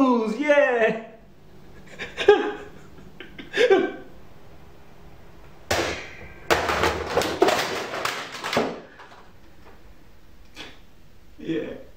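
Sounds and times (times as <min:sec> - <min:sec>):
man sobbing loudly: 0:01.8 - 0:04.1.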